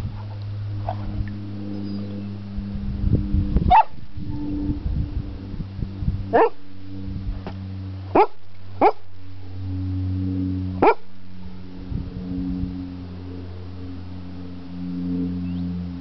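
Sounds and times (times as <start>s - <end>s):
low steady hum: 0.0s - 16.0s
dog barking: 3.7s - 4.0s, 6.4s - 6.6s, 8.1s - 9.0s, 10.8s - 11.0s.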